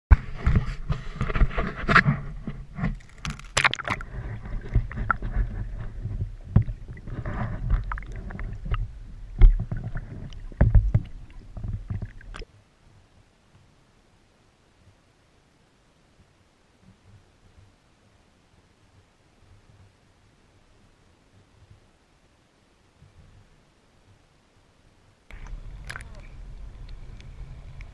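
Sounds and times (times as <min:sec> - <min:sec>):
knocks and splashes: 0:00.1 - 0:12.5, 0:25.3 - 0:26.2
low rumbling: 0:00.1 - 0:12.5, 0:25.3 - 0:27.9
water sloshing and gurgling: 0:00.1 - 0:12.5, 0:25.3 - 0:27.9.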